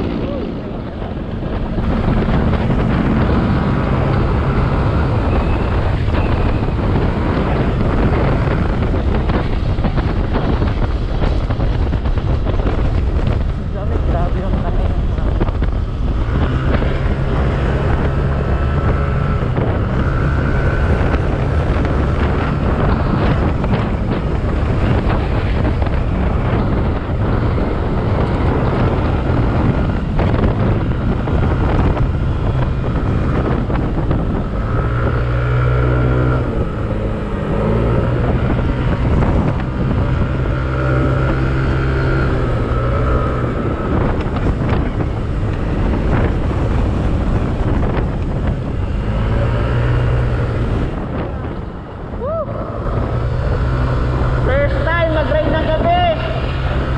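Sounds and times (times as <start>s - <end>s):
scooter engine cruising: 0.0s - 56.9s
wind rushing over microphone: 0.0s - 56.9s.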